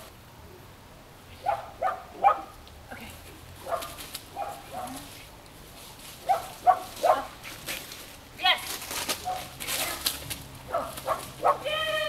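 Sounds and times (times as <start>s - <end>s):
dog barking: 1.4s - 2.5s, 3.6s - 5.0s, 6.2s - 7.3s, 9.2s - 9.5s, 10.7s - 11.7s.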